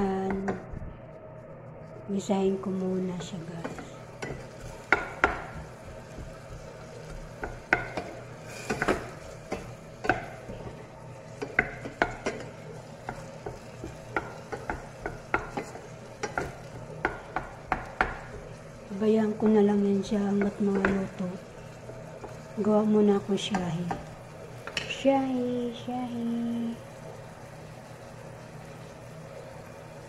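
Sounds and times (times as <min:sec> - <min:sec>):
tomatoes sizzling: 0:00.0 - 0:30.0.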